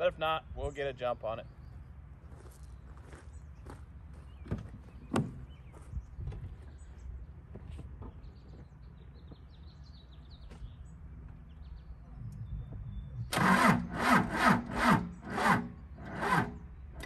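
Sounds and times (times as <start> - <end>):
low outdoor rumble: 0.0 - 17.0
faint bird chirps: 8.0 - 13.3.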